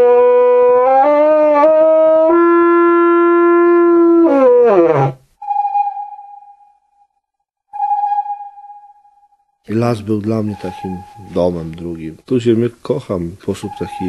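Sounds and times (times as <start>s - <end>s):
thin steady high tone: 5.4s - 6.9s, 7.8s - 12.1s, 13.4s - 14.0s.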